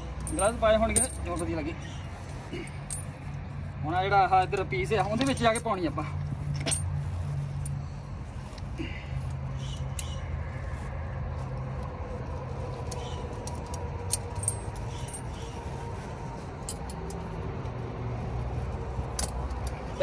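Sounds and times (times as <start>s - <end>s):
chain links clinking: 0.0s - 3.4s, 4.4s - 7.8s, 12.7s - 16.0s, 16.6s - 17.4s, 18.8s - 20.0s.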